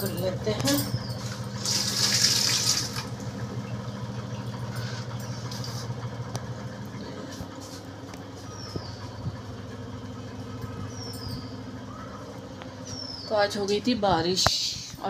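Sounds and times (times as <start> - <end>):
low motor hum: 0.0 - 15.0
water rushing from tap: 1.5 - 3.3.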